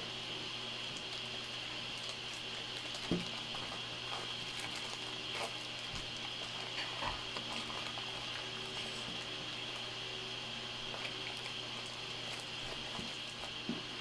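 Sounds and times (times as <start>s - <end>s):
steady hum and hiss: 0.0s - 14.0s
plastic bag crinkling: 2.0s - 9.8s, 10.8s - 13.7s.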